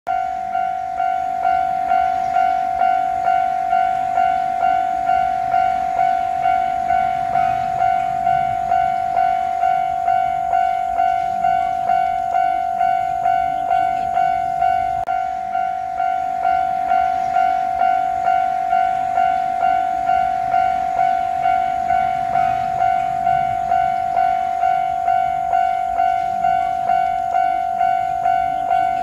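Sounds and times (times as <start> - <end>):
level crossing warning bell: 0.1 - 29.0.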